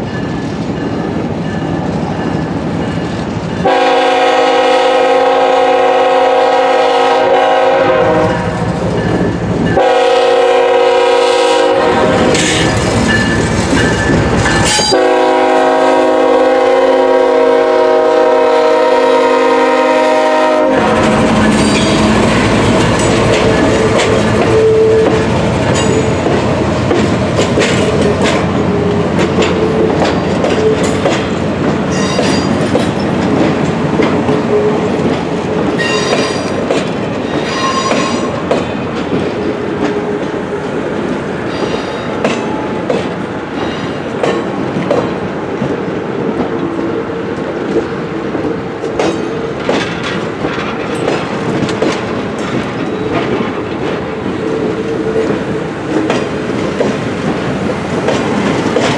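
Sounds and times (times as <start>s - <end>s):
train wheels clacking over rail joints: 10.8s - 16.2s, 19.2s - 58.9s
high wheel squeals: 37.3s - 38.3s, 41.5s - 42.2s.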